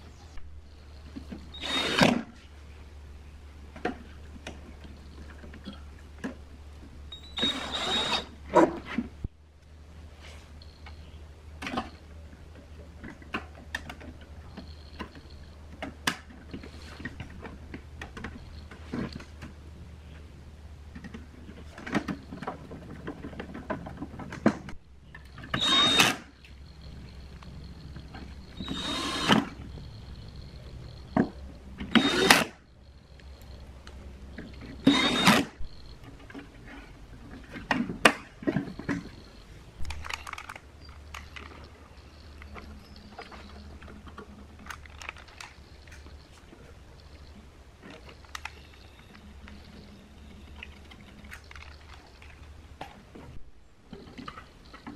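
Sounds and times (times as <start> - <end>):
small metal clicks and knocks: 35.8 - 53.0.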